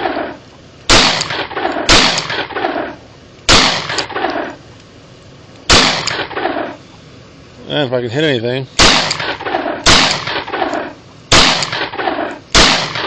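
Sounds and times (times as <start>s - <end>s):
pistol shots with echo: 0.9s - 2.9s, 3.5s - 4.6s, 5.7s - 6.7s, 8.8s - 13.0s.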